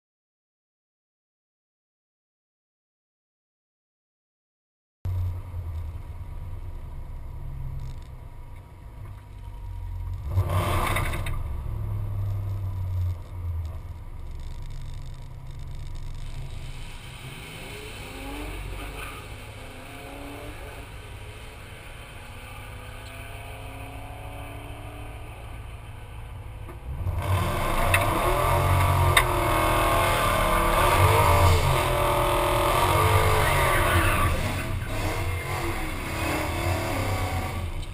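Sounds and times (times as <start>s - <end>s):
engine revving hard: 10.2s - 12.5s, 26.9s - 37.9s.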